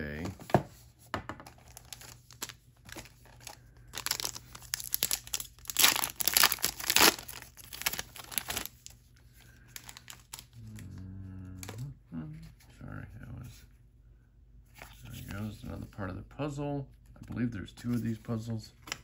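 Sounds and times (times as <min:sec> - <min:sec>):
wrapper tearing and crinkling: 0:01.6 - 0:09.0, 0:09.7 - 0:10.6.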